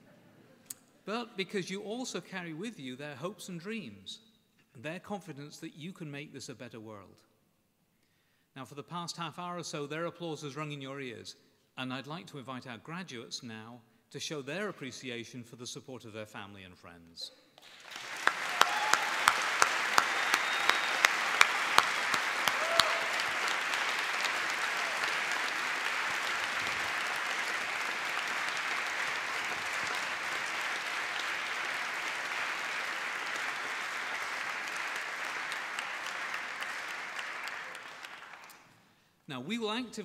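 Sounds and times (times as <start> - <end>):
large audience applauding: 17.6 - 38.7.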